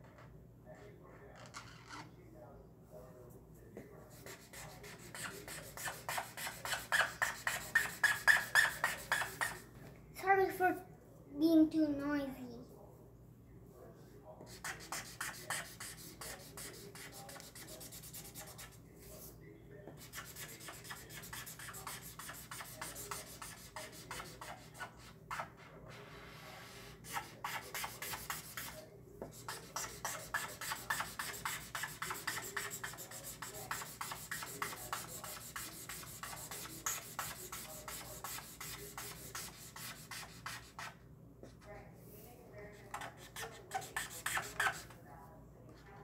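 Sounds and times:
marker rubbing on paper: 0:04.1 - 0:09.7, 0:14.4 - 0:19.3, 0:19.9 - 0:41.0, 0:42.6 - 0:45.0.

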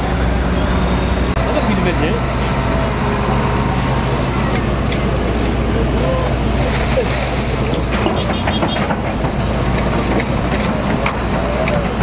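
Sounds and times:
excavator diesel engine running: 0:00.0 - 0:12.0
short clatters: 0:06.6 - 0:12.0.

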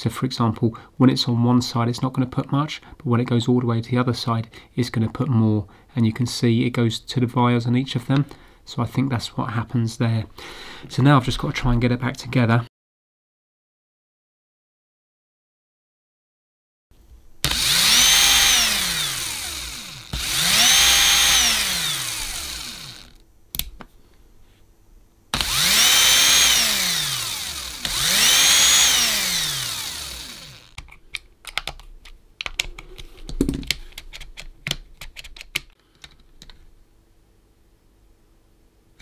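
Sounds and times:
cordless drill motor: 0:17.4 - 0:23.2, 0:25.3 - 0:30.8.

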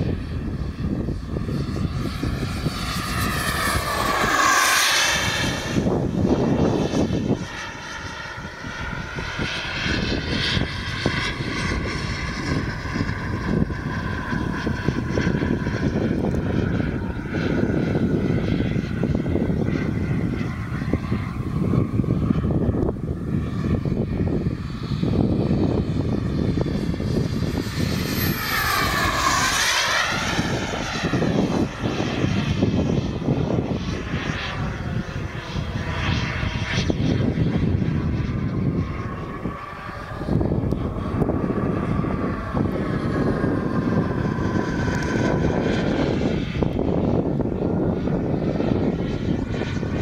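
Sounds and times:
model jet turbine whine: 0:00.0 - 0:50.0.

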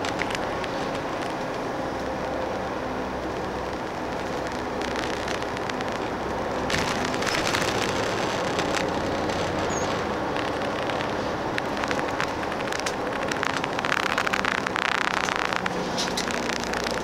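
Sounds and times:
bus engine drone: 0:00.0 - 0:17.0
road noise: 0:00.0 - 0:17.0
clicks and rattles: 0:04.1 - 0:17.0.

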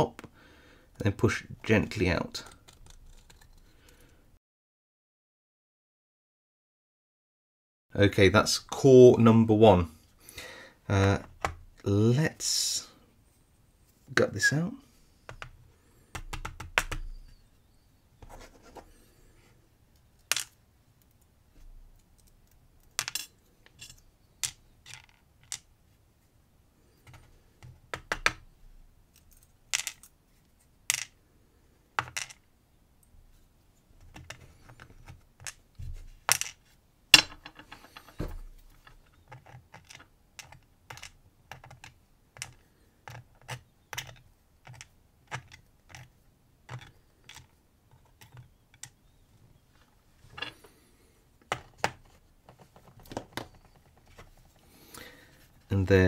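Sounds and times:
lock pins clicking on plastic tray: 0:39.0 - 0:46.1.

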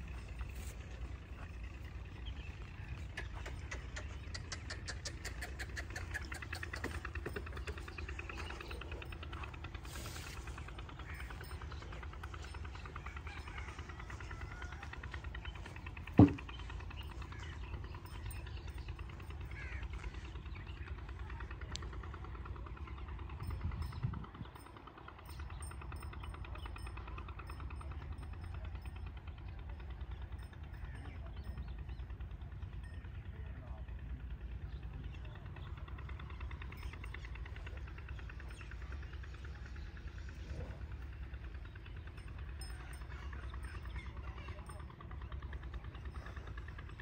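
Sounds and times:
engine running with fast ticking: 0:00.0 - 0:47.0
motor throbbing: 0:00.0 - 0:47.0
faint crows cawing: 0:19.4 - 0:20.5.

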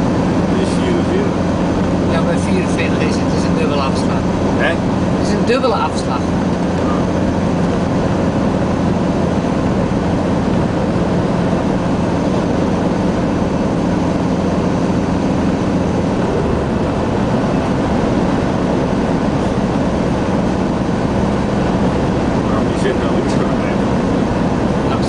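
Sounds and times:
car engine hum: 0:00.0 - 0:25.0
tyre and road noise: 0:00.0 - 0:25.0.

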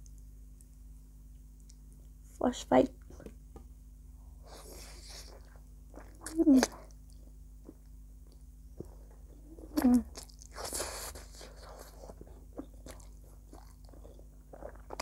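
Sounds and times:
wet chewing: 0:04.8 - 0:15.0.

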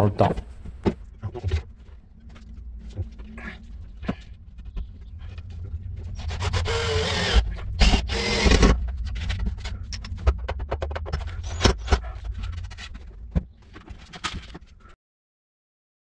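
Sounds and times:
low hum: 0:00.0 - 0:15.0
drill driving a screw into wood: 0:06.4 - 0:08.8.

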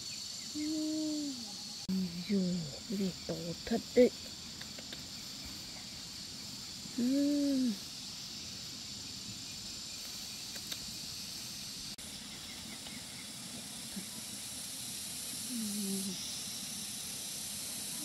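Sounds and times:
high-pitched insect chorus: 0:00.0 - 0:18.0
short hummed voice sound: 0:00.6 - 0:02.2.

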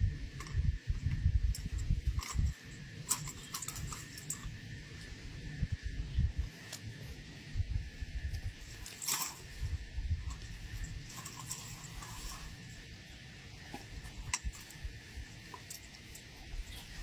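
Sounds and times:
net mesh rustling: 0:08.6 - 0:17.0.

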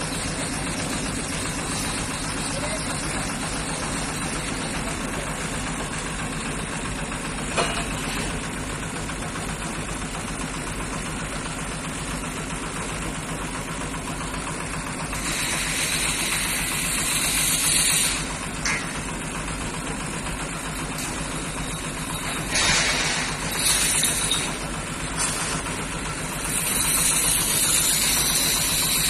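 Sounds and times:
heavy machinery engine running: 0:00.0 - 0:29.0
loud hiss: 0:15.2 - 0:18.4.

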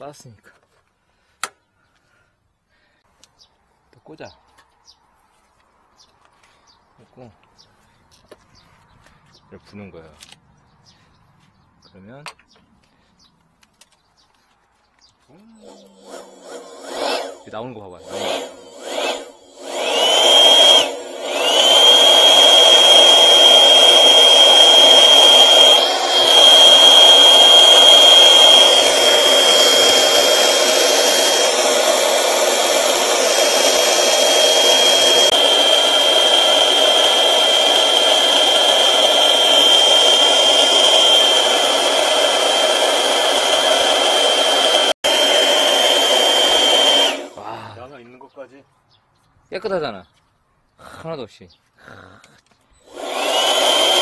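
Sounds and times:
electric blower whining: 0:15.3 - 0:47.6, 0:52.8 - 0:54.0.

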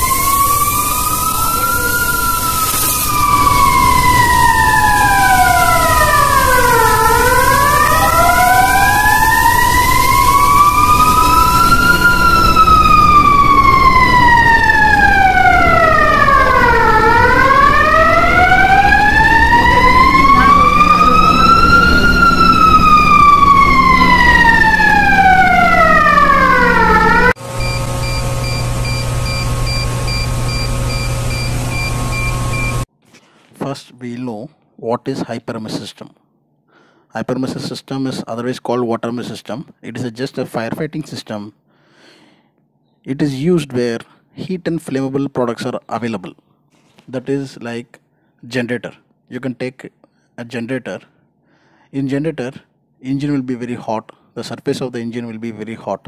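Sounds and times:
fire alarm siren wailing: 0:00.0 - 0:32.9
pulsing electronic alarm beep: 0:00.0 - 0:32.9
steady hum: 0:00.0 - 0:32.9
steady tone: 0:00.0 - 0:32.9.

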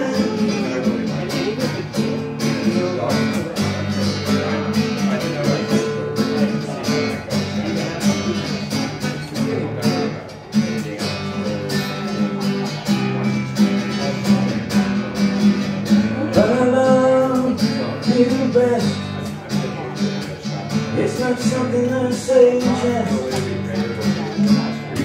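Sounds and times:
acoustic guitar strumming chords: 0:00.0 - 0:25.0.

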